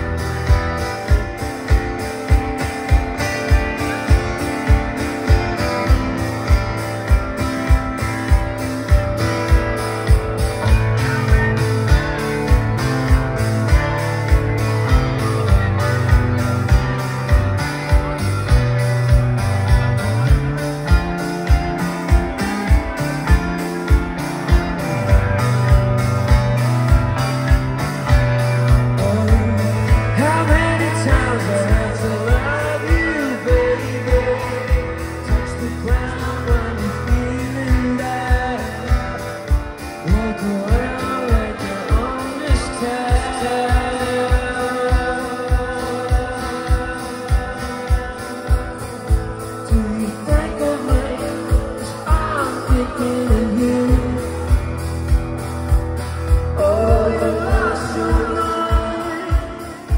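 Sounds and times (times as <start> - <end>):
live rock band playing: 0.0 - 59.9
male singer: 28.6 - 55.2, 56.3 - 59.9.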